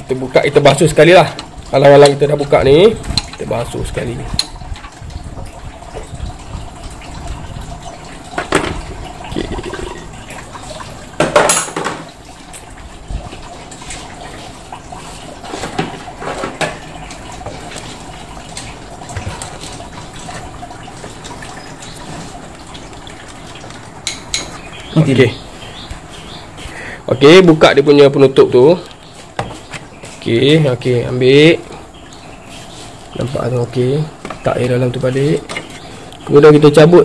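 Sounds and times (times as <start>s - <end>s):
water trickling and dripping: 0.0s - 37.0s
plastic tank clattering: 8.2s - 12.2s, 15.4s - 25.2s.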